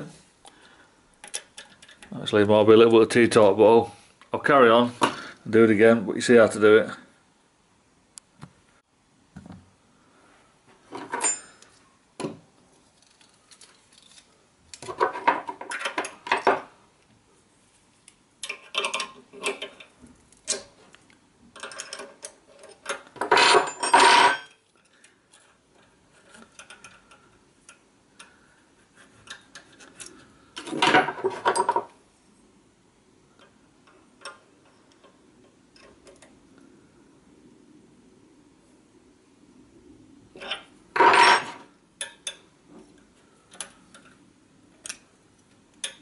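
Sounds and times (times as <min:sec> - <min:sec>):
metal spanners clinking: 0:11.0 - 0:11.7, 0:21.6 - 0:25.5.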